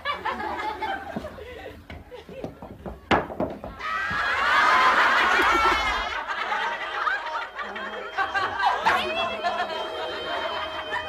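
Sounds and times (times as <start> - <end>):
crowd laughing and shrieking: 3.7 - 11.0.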